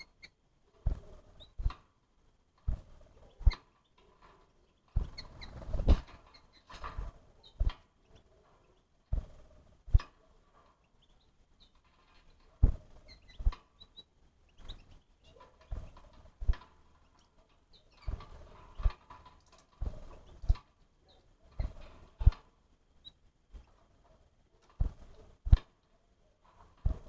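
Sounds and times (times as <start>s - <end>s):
high squeaks or chirps: 0.0s - 1.7s, 2.7s - 3.9s, 4.8s - 8.3s, 11.0s - 16.2s, 17.1s - 22.4s.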